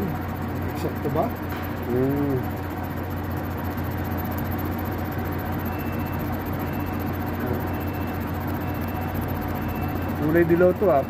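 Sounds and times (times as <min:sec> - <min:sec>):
machine electric hum: 0:00.0 - 0:11.0.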